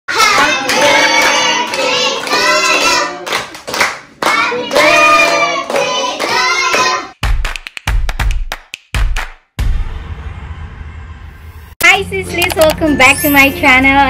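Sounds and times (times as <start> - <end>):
group of people singing: 0.1 - 3.5, 4.2 - 7.2
hands clapping: 0.2 - 9.5.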